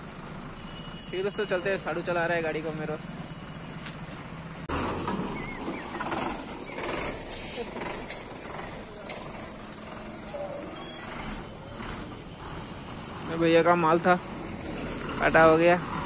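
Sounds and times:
truck engine running: 2.2 - 16.0
indistinct voices: 5.4 - 14.3.

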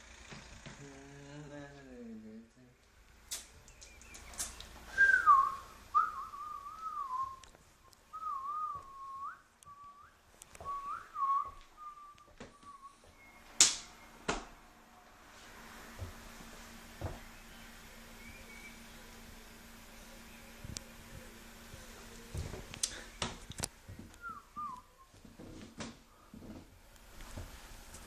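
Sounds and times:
person whistling a tune: 4.9 - 7.4, 8.1 - 13.3, 24.2 - 25.2.

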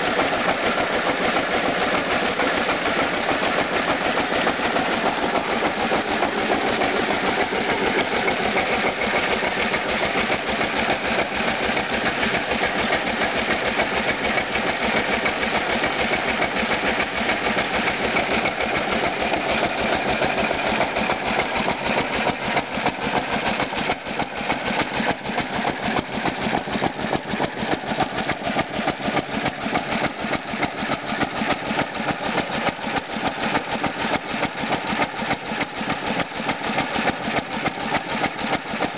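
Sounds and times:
engine mechanical clatter: 0.0 - 38.9.

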